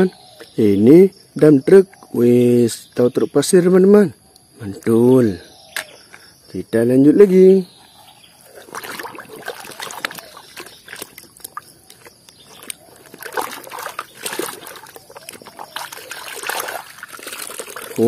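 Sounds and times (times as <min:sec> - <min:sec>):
scrubbing toy under water: 0:08.4 - 0:18.0
water sloshing in plastic basin: 0:08.4 - 0:18.0.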